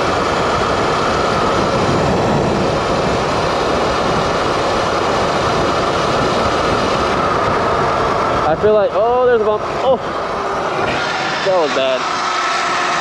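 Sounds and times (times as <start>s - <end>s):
wind blowing across microphone: 0.0s - 12.1s
road noise: 0.0s - 13.0s
wind rushing: 0.4s - 13.0s.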